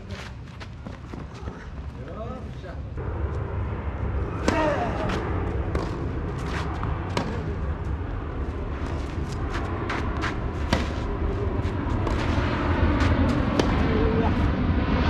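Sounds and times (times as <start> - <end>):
low rumble: 2.9 - 15.0
tennis racket hitting ball: 4.4 - 7.5, 8.9 - 14.1.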